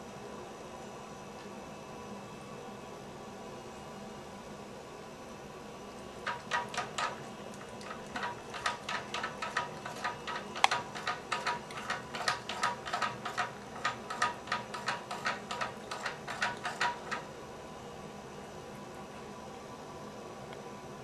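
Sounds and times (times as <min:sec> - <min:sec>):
cat lapping water: 0:06.2 - 0:17.2.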